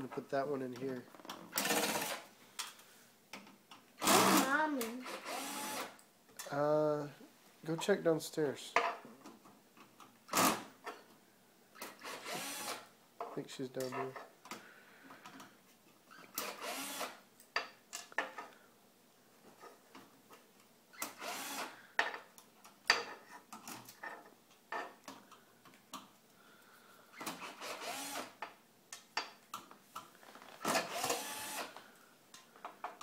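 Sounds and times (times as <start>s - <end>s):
cordless screwdriver driving screws: 27.4s - 28.3s, 30.6s - 31.7s.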